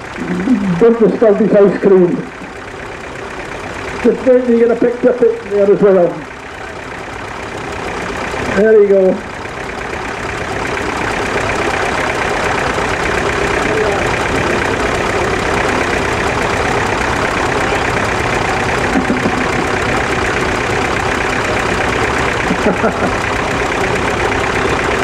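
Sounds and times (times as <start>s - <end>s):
tractor engines idling: 0.0s - 25.0s.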